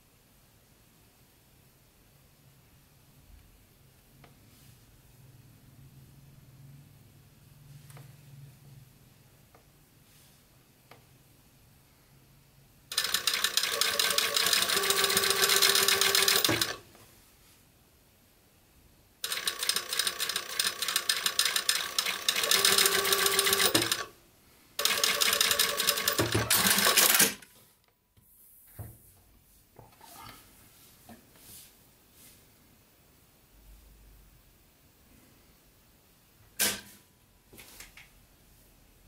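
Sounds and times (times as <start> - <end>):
sewing machine stitching: 12.9 - 16.8, 19.2 - 24.1, 24.8 - 27.4.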